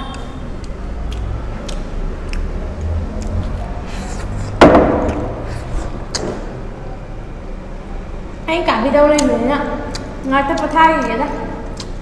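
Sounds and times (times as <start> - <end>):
knock on tabletop: 4.6 - 5.1.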